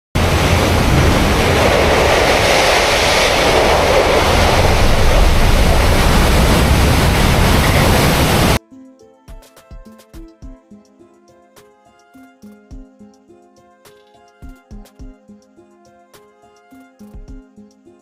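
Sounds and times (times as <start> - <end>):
turbulent water rushing: 0.2 - 8.6
faint music: 8.6 - 18.0.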